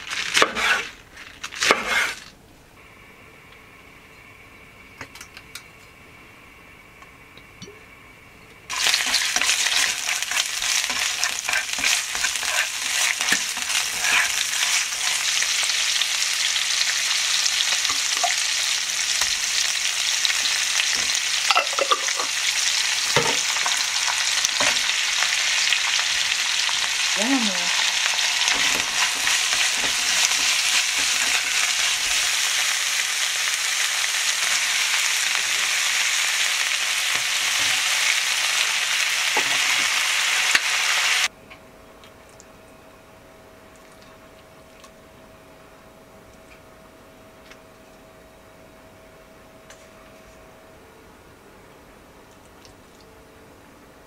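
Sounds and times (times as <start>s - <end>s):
food sizzling in a pan: 8.7s - 41.3s.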